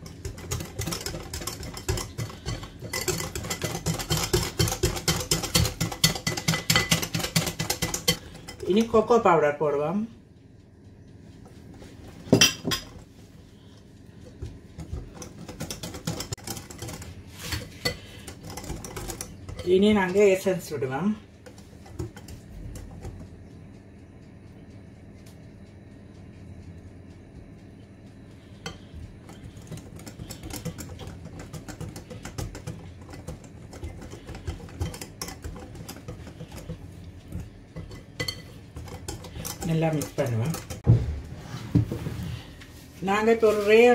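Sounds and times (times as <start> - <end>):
whisk clinking against glass bowl: 0.0 - 9.1, 14.9 - 20.5, 28.6 - 40.8.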